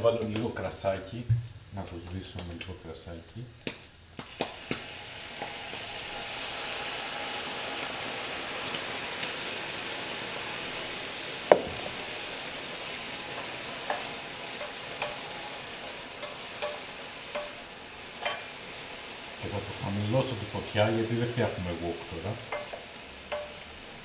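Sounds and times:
food sizzling in frying pan: 0:00.0 - 0:24.0
sharp knock: 0:11.5 - 0:12.1.

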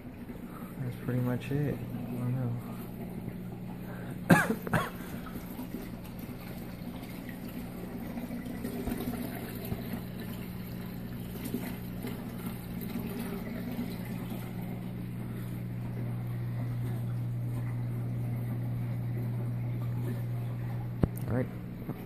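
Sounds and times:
low equipment hum: 0:00.0 - 0:22.0
water splashing and trickling: 0:04.8 - 0:18.9.

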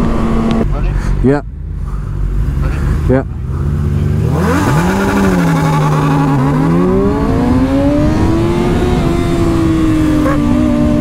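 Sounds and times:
motorcycle engine accelerating: 0:00.0 - 0:00.8, 0:01.4 - 0:11.0.

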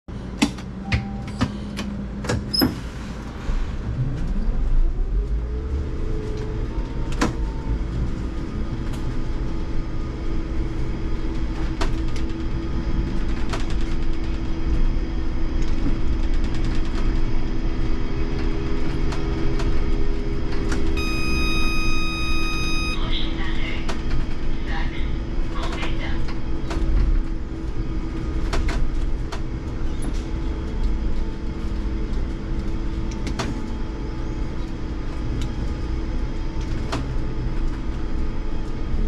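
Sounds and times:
road and body rumble: 0:00.1 - 0:39.0.

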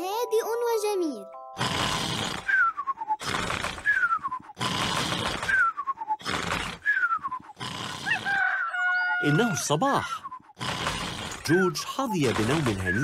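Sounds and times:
cartoon pigs snoring: 0:01.6 - 0:08.6, 0:09.9 - 0:13.0.

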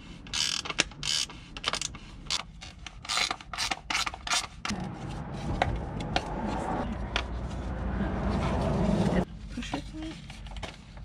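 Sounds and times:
plastic housing creaking and scraping: 0:00.2 - 0:07.5.

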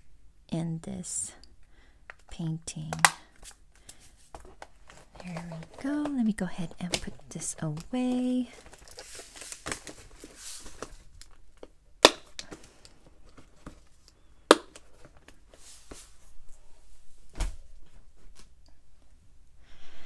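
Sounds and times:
plastic containers rattling: 0:04.4 - 0:11.4.

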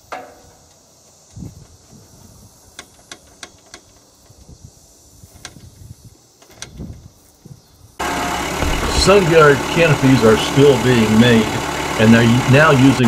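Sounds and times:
plastic canopy rattling: 0:08.5 - 0:11.5.

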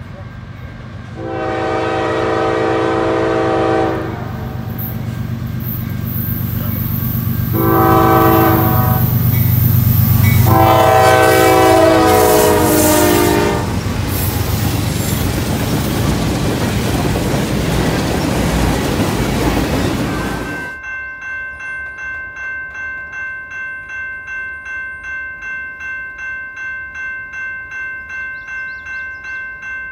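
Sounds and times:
diesel locomotive engine drone: 0:00.0 - 0:20.8
train horn blasts: 0:01.2 - 0:04.8, 0:07.5 - 0:09.3, 0:10.3 - 0:13.9
train wheels clattering on rail: 0:09.0 - 0:20.8.

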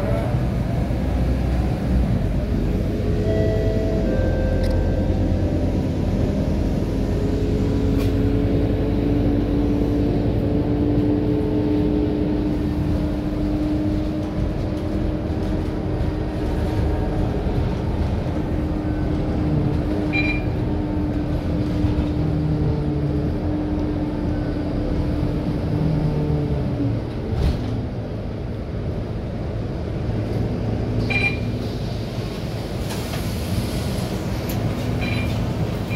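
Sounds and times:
bus engine rumble and whine: 0:00.0 - 0:35.9
short high beeps: 0:31.1 - 0:31.5, 0:35.0 - 0:35.4.

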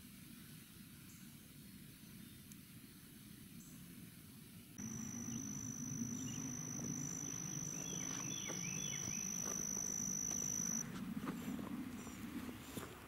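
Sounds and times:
high-pitched insect trill: 0:04.8 - 0:10.8
low rumble: 0:04.8 - 0:13.0.

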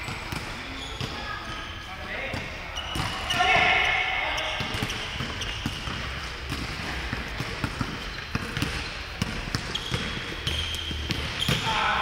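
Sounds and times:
sneaker squeaks: 0:00.0 - 0:12.0
basketball bouncing: 0:04.6 - 0:11.8.

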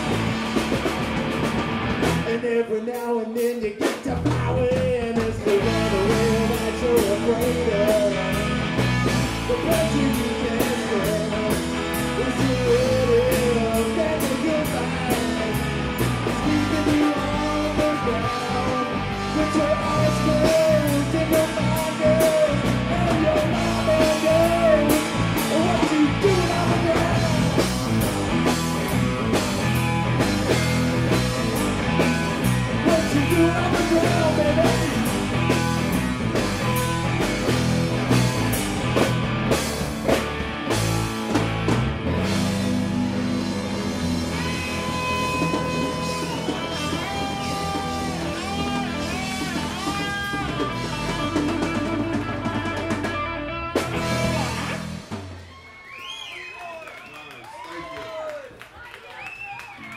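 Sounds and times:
live rock band playing: 0:00.0 - 0:56.0
bass: 0:00.0 - 0:59.9
drum beat: 0:44.0 - 0:53.2.

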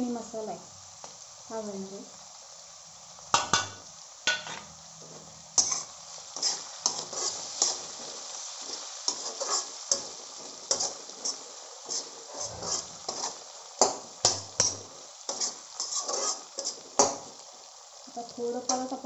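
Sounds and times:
vegetables sizzling: 0:00.0 - 0:19.0
spatula scraping pan: 0:05.6 - 0:17.3.

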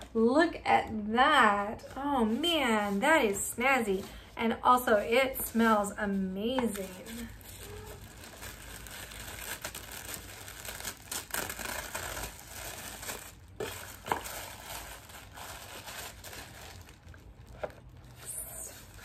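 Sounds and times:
tissue paper rustling: 0:04.9 - 0:19.0.

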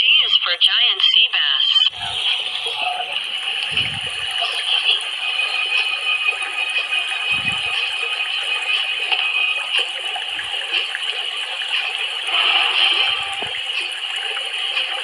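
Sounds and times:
dull low thumps: 0:03.7 - 0:04.3, 0:07.3 - 0:07.8.

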